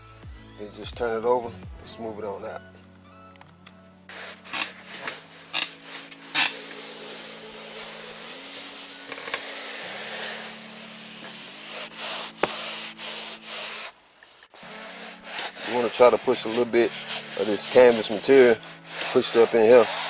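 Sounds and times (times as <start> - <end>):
hand rubbing canvas cloth: 4.1 - 14.0, 14.6 - 20.0.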